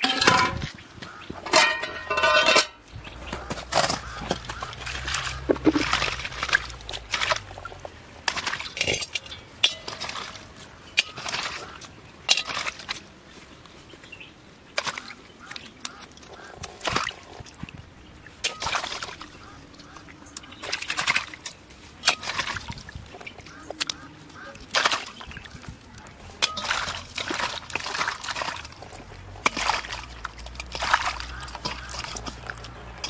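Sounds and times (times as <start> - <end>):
hard objects clinking and knocking: 0.0 - 0.8, 1.4 - 2.8.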